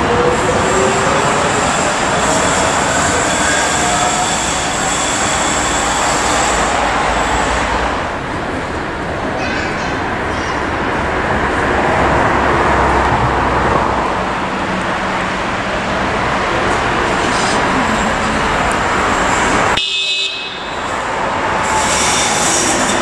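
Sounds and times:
high wheel squeal: 0.0s - 10.8s, 16.4s - 23.0s
light-rail car running noise: 0.0s - 23.0s.

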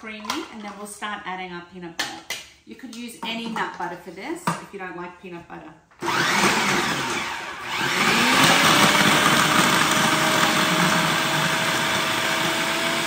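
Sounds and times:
food processor chopping: 6.0s - 13.0s.

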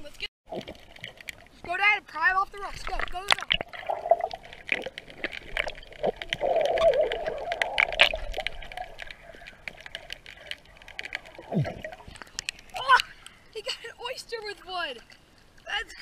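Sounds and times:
underwater crackle of clicks: 0.5s - 1.6s, 2.8s - 13.5s
bubbles gurgling: 2.5s - 13.0s.

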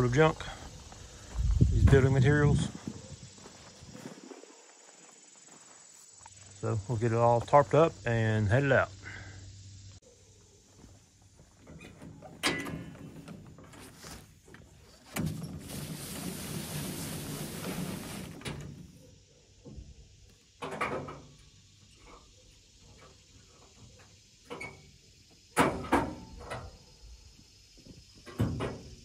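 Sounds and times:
tarp rustling and scraping: 13.0s - 18.8s.

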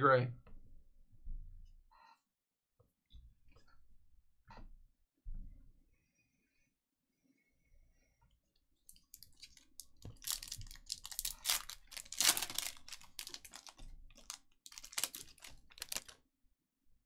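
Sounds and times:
foil wrapper crinkling and ripping: 8.9s - 16.2s.

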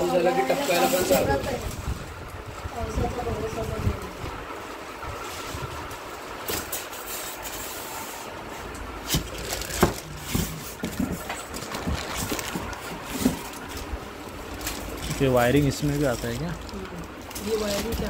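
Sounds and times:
steady low rumble: 1.3s - 6.4s.

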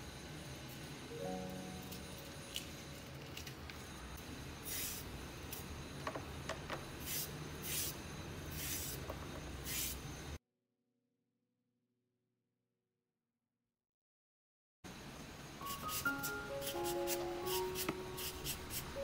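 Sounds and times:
slicer rasping on cucumber: 15.7s - 19.0s.

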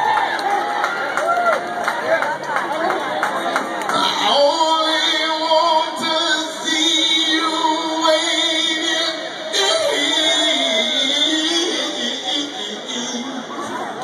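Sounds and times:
man singing rock with vibrato: 4.0s - 13.7s.

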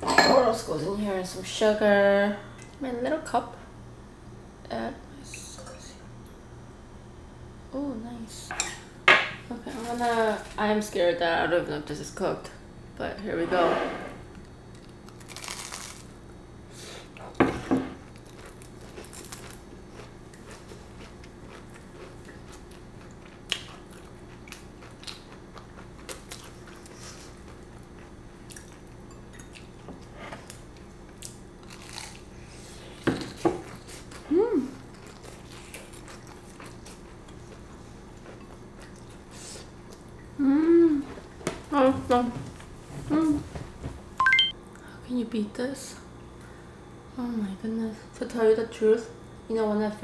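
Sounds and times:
crunching bites into fried food: 14.8s - 16.2s, 18.1s - 26.6s, 31.2s - 32.3s
chewing: 18.1s - 32.3s, 33.7s - 40.3s.

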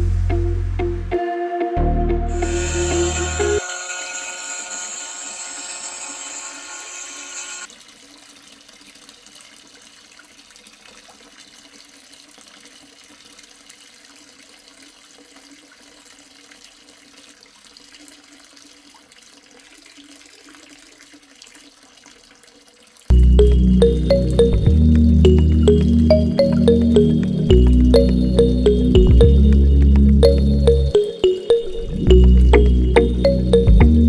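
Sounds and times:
water trickling into tank: 7.6s - 31.0s.

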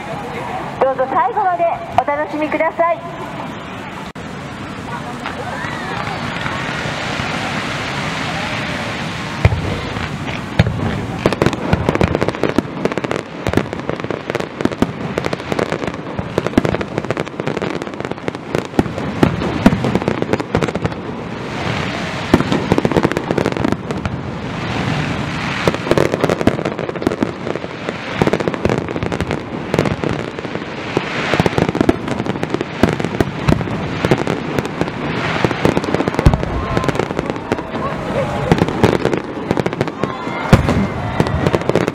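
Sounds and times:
fireworks bangs and crackling: 0.0s - 41.9s.

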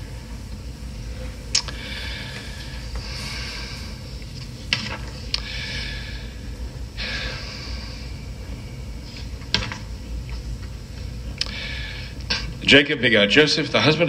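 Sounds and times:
rustling and shuffling: 0.0s - 6.9s
steady low hum: 0.0s - 14.0s.

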